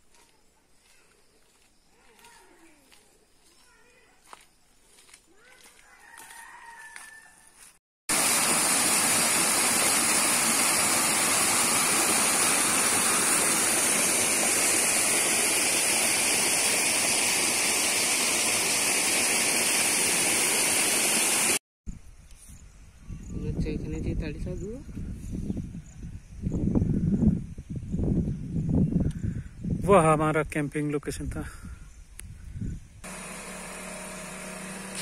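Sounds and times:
water rushing over a weir: 8.1 - 21.6.

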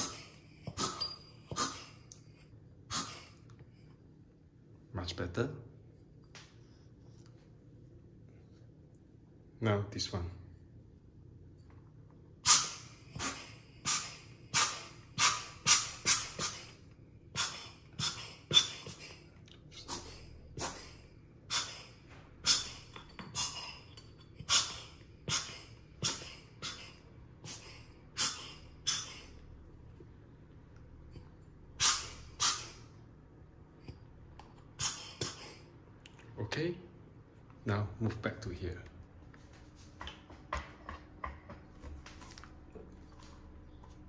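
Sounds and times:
air blower puffs: 12.4 - 19.2, 31.8 - 33.0.

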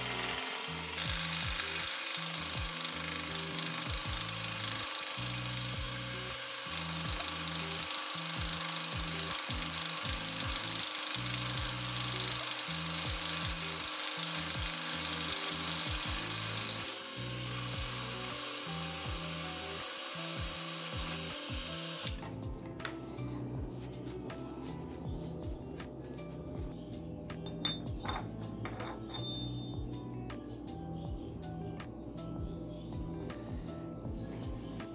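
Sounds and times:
milling machine cutting steel: 0.0 - 22.2
background music: 0.0 - 34.9.

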